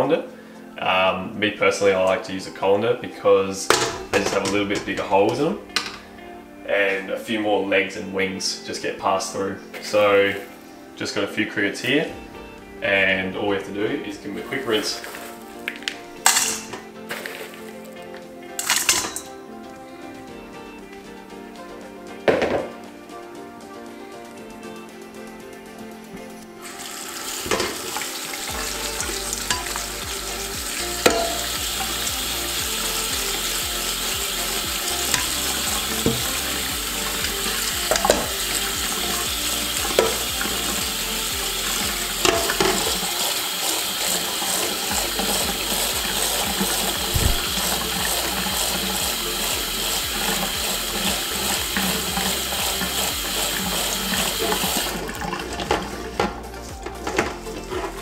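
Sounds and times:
tap water running: 3.7 - 6.2, 14.5 - 18.0, 26.6 - 58.0
hands stirring in colander: 14.5 - 17.9, 27.4 - 58.0
colander knocking on steel sink: 31.1 - 31.6, 42.2 - 43.0.

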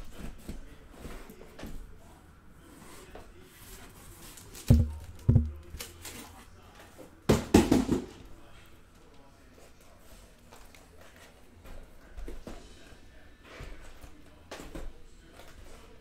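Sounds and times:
boxes thumping down: 4.7 - 5.9.

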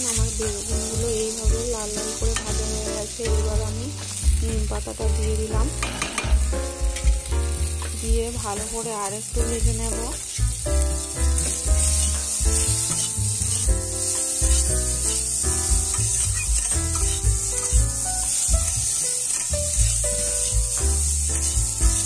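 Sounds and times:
spatula stirring: 0.0 - 22.0
vegetables sizzling in oil: 0.0 - 22.0
background music with bass beat: 3.4 - 8.6, 9.4 - 18.9.

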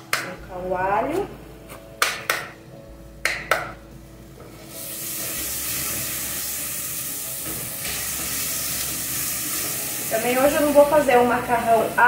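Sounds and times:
garlic sizzling in hot oil: 4.5 - 12.0.

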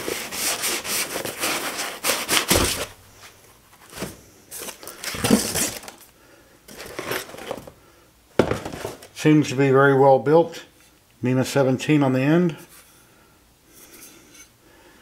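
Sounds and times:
foam rustling and rubbing: 0.0 - 6.0
scraping and handling noise: 0.0 - 6.1, 6.7 - 7.8, 8.4 - 9.2.

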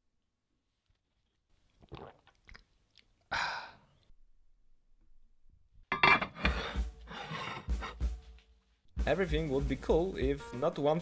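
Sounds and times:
breathy sigh: 3.3 - 4.0.

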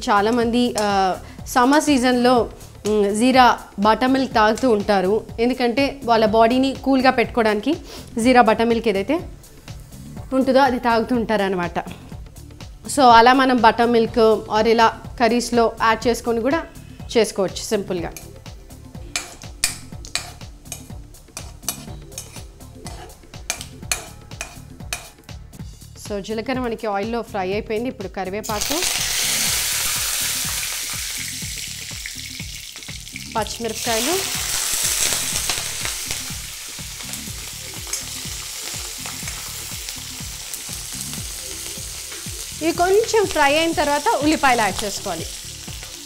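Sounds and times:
spices sizzling in hot oil: 0.0 - 11.4, 17.6 - 25.9, 28.4 - 46.0
metal spoon scraping a pan: 19.1 - 25.3
seeds frying in oil: 28.4 - 46.0.

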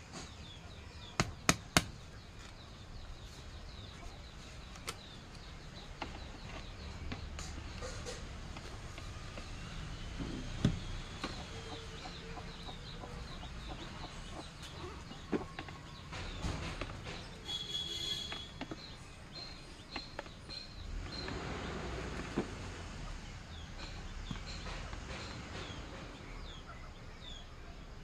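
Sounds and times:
small birds chirping: 0.0 - 28.0
chickens clucking: 3.3 - 17.6.

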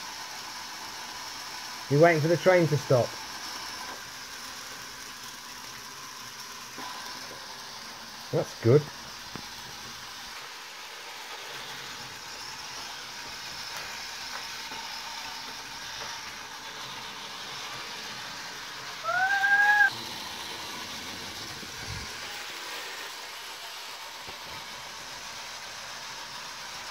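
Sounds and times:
toy train whirring: 0.0 - 26.9
short rising whistle: 19.0 - 19.9.

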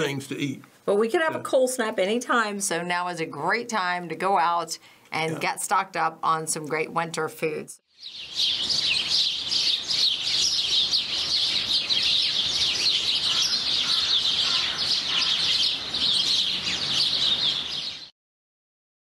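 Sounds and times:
songbirds chirping: 7.9 - 18.1.

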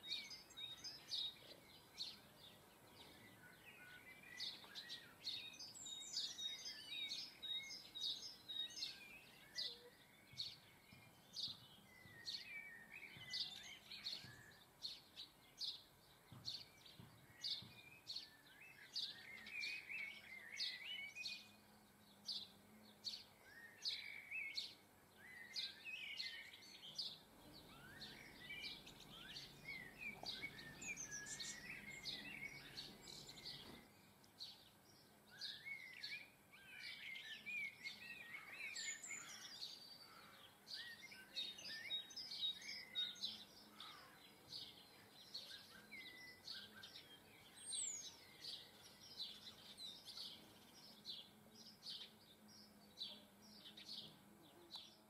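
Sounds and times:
songbirds chirping and singing: 0.0 - 55.0.

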